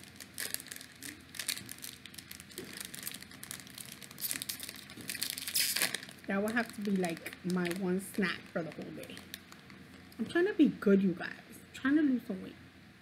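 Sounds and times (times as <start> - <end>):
plastic snack pouch crinkling: 0.0 - 10.2.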